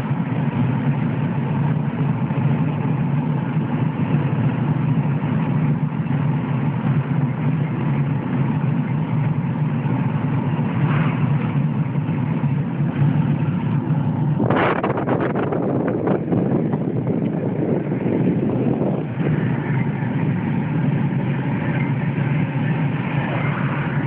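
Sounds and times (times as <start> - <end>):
car cabin engine and road noise: 0.0 - 24.0
wind buffeting microphone: 9.9 - 24.0.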